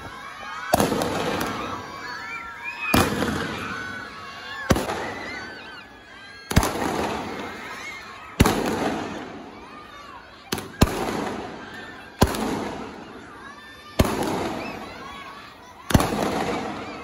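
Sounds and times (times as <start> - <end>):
firecracker bangs with crackling: 6.5 - 7.4, 8.4 - 9.2, 10.5 - 11.5, 12.2 - 12.9, 14.0 - 14.8, 15.9 - 16.9.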